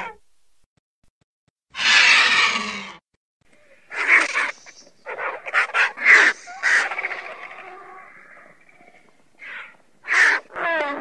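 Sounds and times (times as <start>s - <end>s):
vulture's harsh call: 1.8s - 3.0s, 3.8s - 8.7s, 9.4s - 11.0s.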